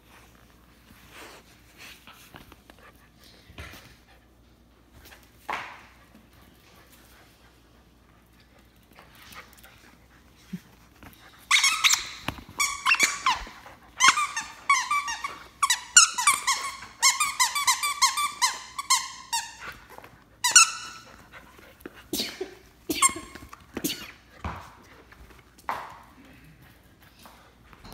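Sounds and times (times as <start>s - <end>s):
squeaky toy squeaking: 11.5s - 19.6s, 20.4s - 21.1s.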